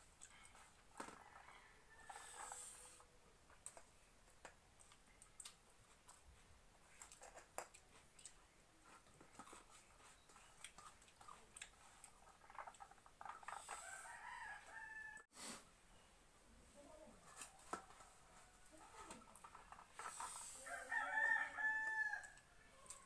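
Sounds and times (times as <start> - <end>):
quiet chewing: 0.0 - 15.3, 16.8 - 23.0.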